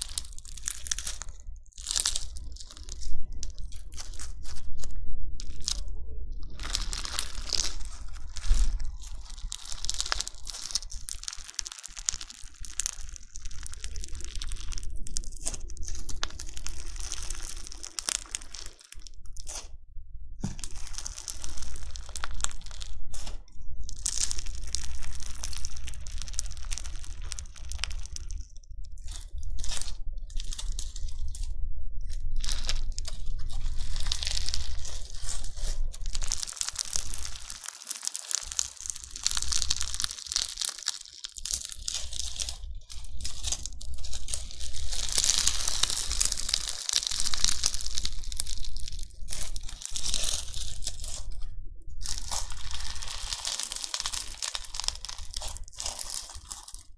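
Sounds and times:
crunchy slime crackling: 0.0 - 19.8, 20.4 - 56.9.

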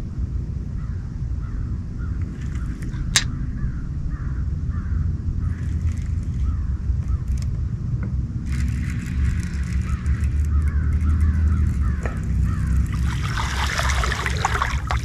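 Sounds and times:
steady low rumble: 0.0 - 15.0
fish splashing in water: 8.5 - 15.0.

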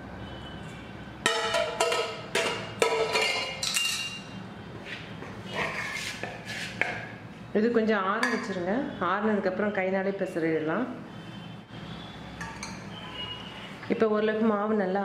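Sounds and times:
spoon clinking on metal bowl: 1.2 - 4.3, 8.2 - 8.6, 12.4 - 12.9
spoon scraping metal bowl: 5.5 - 7.0.

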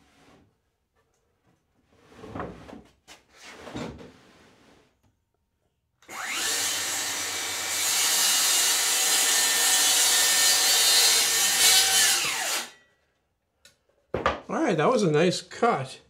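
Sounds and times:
circular saw cutting plywood: 6.1 - 12.8.

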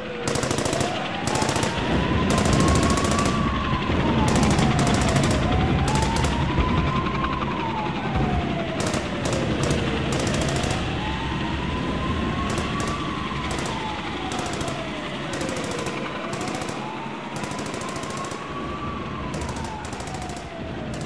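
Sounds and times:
siren wailing: 0.0 - 21.0
rapid rattling: 0.2 - 6.8, 8.7 - 11.1, 12.5 - 18.7, 19.3 - 21.0.

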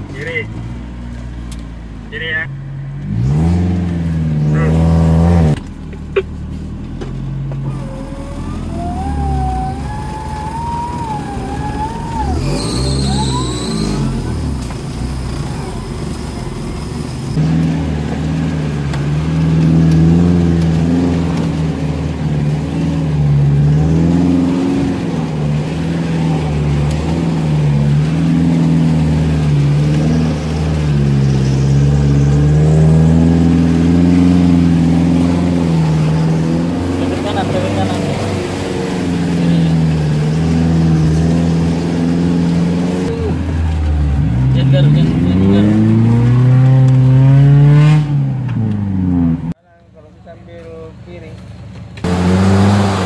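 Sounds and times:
off-road vehicle engine droning: 0.0 - 53.0.

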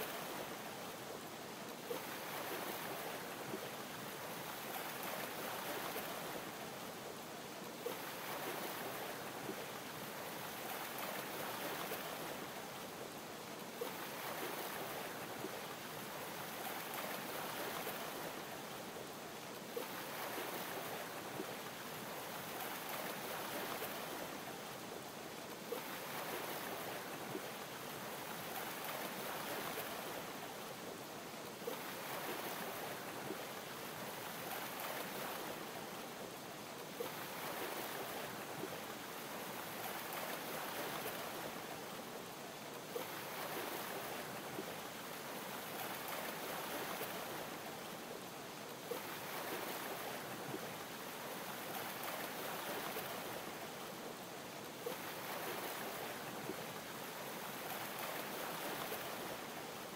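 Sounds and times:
ocean waves lapping: 1.9 - 3.4, 19.7 - 24.3, 25.6 - 30.4, 31.6 - 36.0, 36.9 - 41.8, 42.9 - 47.9, 48.9 - 53.6, 54.8 - 59.4.

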